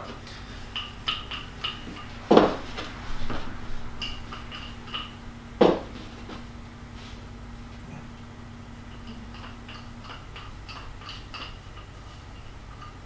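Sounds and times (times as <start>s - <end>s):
rolling pin knocks on wood: 5.6s - 6.0s.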